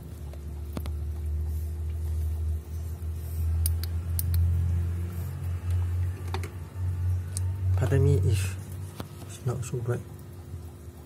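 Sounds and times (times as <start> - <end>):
sharp clicks: 3.6 - 4.5.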